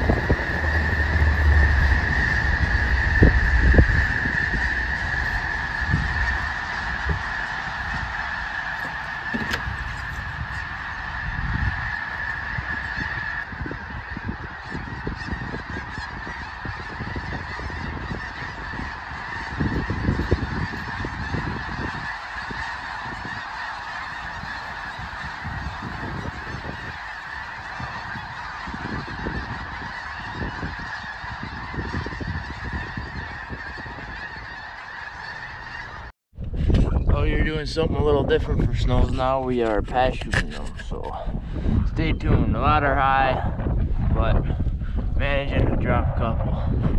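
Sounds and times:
flock of geese honking: 0.0 - 36.1, 37.1 - 46.9.

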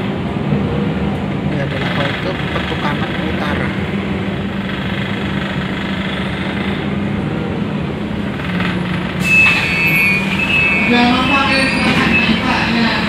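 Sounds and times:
bus engine humming: 0.0 - 13.0
road noise: 0.0 - 13.0
high steady tone: 9.2 - 13.0.

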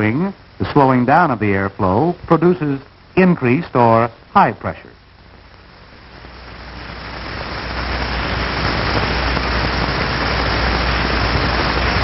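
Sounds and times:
low hum: 0.0 - 12.0
rushing air hiss: 6.1 - 12.0.

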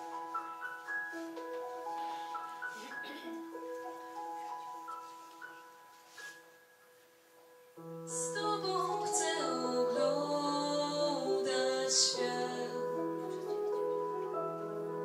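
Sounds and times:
instrumental accompaniment: 0.0 - 15.0
group singing: 8.4 - 12.8.

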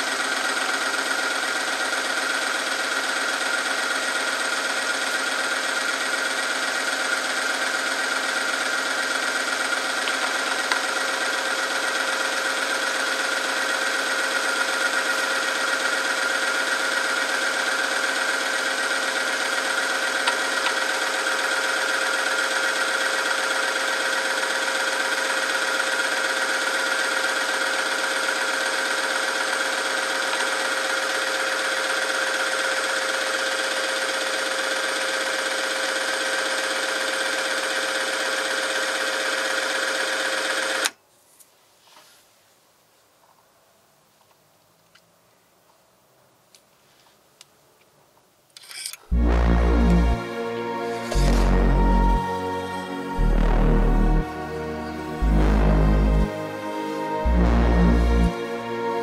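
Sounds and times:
electric motor humming and whining: 49.1 - 59.0.

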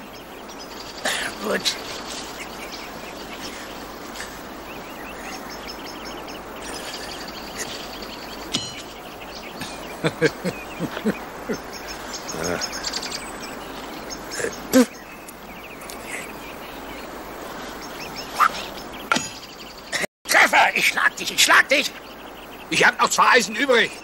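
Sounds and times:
birds chirping: 0.0 - 24.0
steady outdoor hiss: 0.0 - 24.0
man laughing: 3.4 - 4.5, 6.6 - 8.0, 9.6 - 11.7
horseshoe striking iron stake: 8.5 - 8.9, 19.1 - 19.4.

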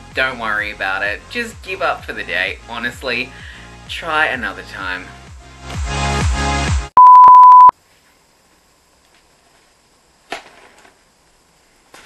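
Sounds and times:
electronic beep: 7.0 - 7.7.

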